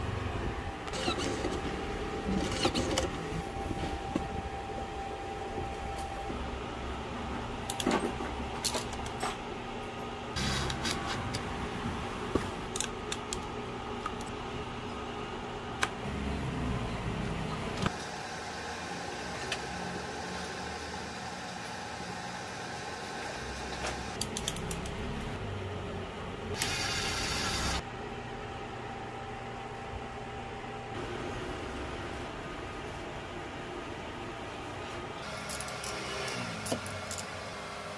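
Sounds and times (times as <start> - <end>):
room hum: 0.0 - 37.9
screwdriver and metal parts clinking: 36.6 - 37.4.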